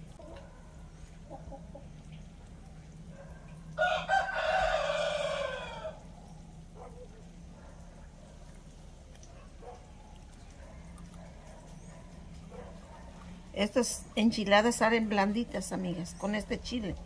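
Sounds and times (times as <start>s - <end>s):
rooster crowing: 3.8s - 6.1s.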